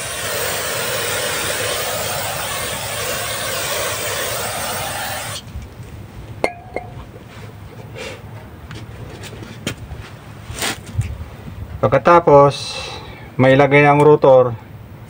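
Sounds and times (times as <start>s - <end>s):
aerosol can spraying: 0.0s - 5.5s.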